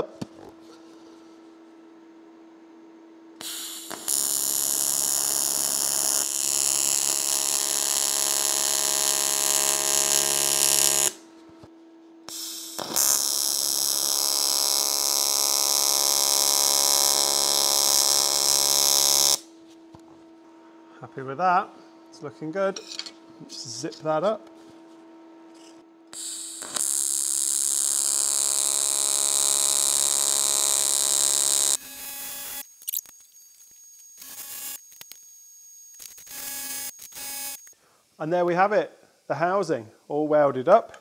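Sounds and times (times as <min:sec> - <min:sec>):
welding arc buzzing: 0:03.4 - 0:11.2, 0:12.3 - 0:19.5, 0:26.1 - 0:37.7.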